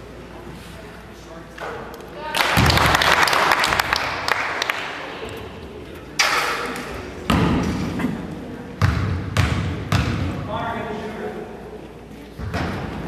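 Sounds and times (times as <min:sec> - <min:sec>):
basketball bouncing on gym floor: 0:08.8 - 0:10.4.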